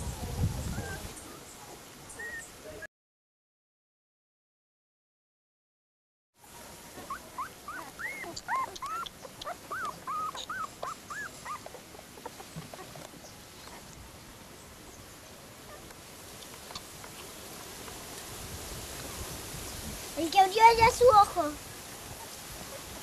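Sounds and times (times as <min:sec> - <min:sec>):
puppies whimpering: 0:00.6 - 0:01.4, 0:02.2 - 0:02.9, 0:06.9 - 0:13.9.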